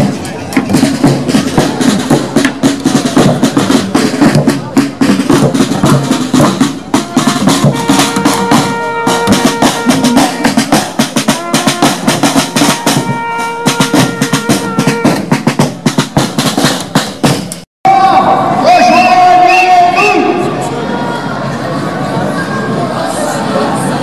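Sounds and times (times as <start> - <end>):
marching drums: 0.0 - 17.6.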